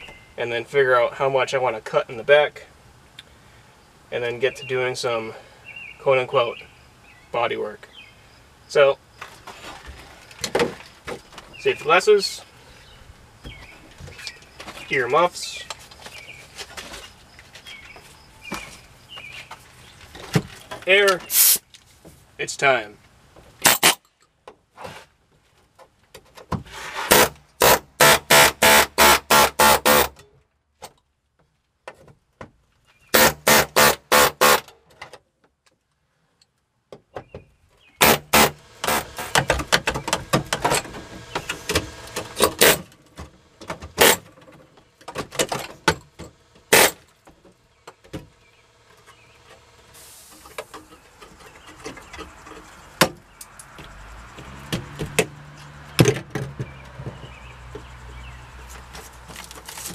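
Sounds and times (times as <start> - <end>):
metal clanking and scraping: 38.2 - 47.1.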